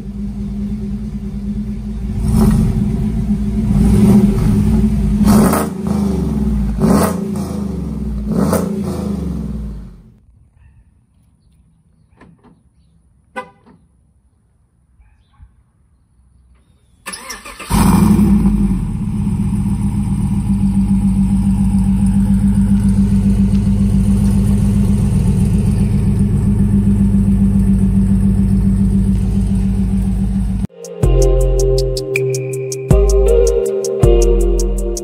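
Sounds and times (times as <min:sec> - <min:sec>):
engine starting and idling: 0:17.0 - 0:30.7
engine cranking: 0:17.1 - 0:30.7
faint clicks: 0:21.8 - 0:24.6.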